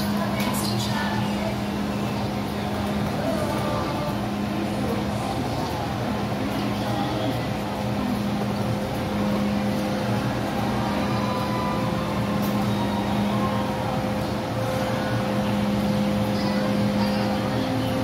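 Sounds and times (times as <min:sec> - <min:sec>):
train equipment humming: 0:00.0 - 0:18.0.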